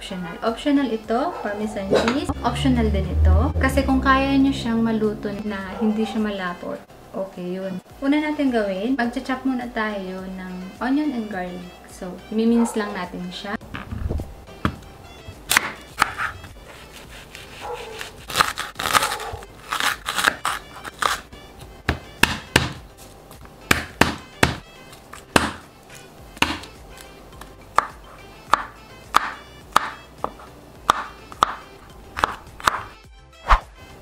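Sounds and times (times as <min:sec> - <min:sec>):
knife chopping on cutting board: 0:15.4 - 0:21.2, 0:21.8 - 0:22.9, 0:23.6 - 0:25.7, 0:26.4 - 0:33.7.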